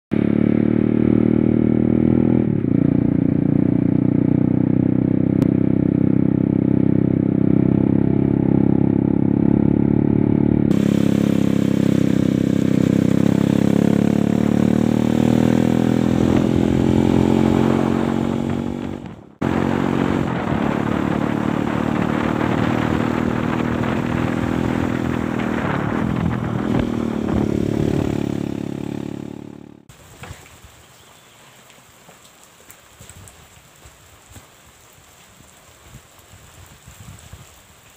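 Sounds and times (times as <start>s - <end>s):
dirt bike engine running: 0.1s - 29.9s
wind and road noise: 0.1s - 31.0s, 32.0s - 37.9s.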